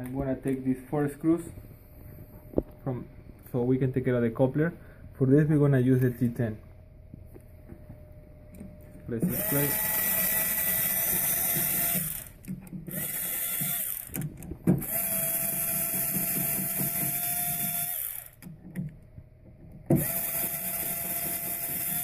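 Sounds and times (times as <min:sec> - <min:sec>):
electric screwdriver whining: 0:09.2 - 0:18.6, 0:19.9 - 0:22.0.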